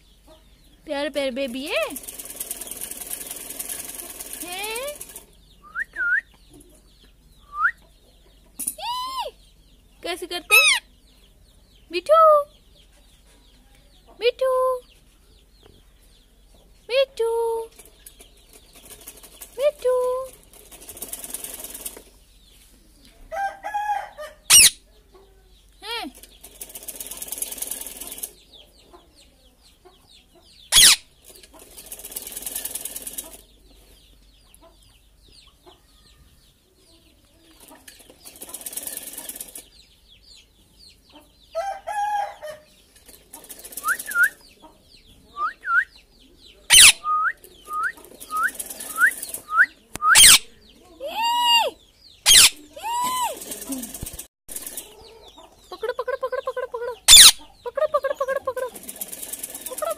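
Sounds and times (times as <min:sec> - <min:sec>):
parakeet calling and screeching: 0:10.5 - 0:10.9, 0:24.5 - 0:24.8, 0:30.7 - 0:31.1, 0:46.7 - 0:47.0, 0:50.1 - 0:50.5, 0:51.2 - 0:53.4, 0:57.0 - 0:57.5.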